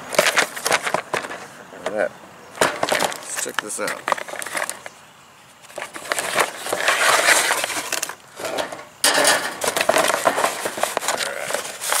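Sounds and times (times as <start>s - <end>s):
cardboard box rustling: 0.1s - 1.4s, 5.6s - 8.7s, 9.6s - 12.0s.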